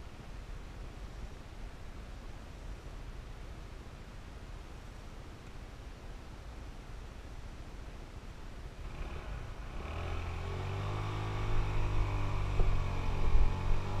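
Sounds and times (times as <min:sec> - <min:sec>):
motorbike engine running: 0:09.0 - 0:14.0.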